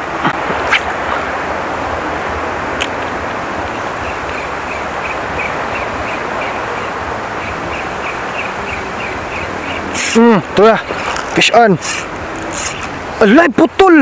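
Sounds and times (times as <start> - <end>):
wind and sea water hiss: 0.0 - 14.0
fishing reel ticking: 11.1 - 12.9.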